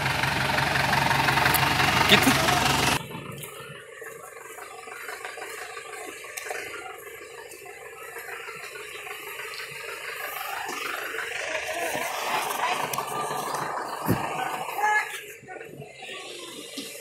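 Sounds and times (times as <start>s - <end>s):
faint jeep engine: 0.0s - 17.0s
steady rushing hiss: 3.9s - 17.0s.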